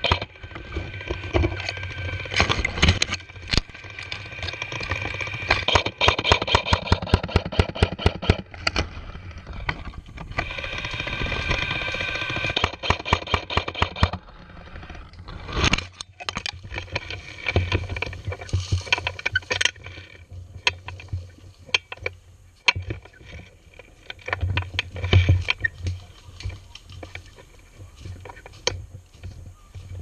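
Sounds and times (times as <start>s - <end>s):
twigs cracking: 0.0s - 6.9s, 23.9s - 28.8s
footsteps crunching dry leaves: 25.9s - 30.0s.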